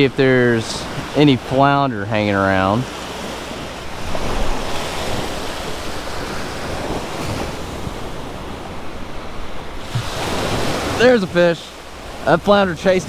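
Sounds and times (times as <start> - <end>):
small surf washing over sand: 2.2 - 13.0
wind buffeting microphone: 2.6 - 13.0.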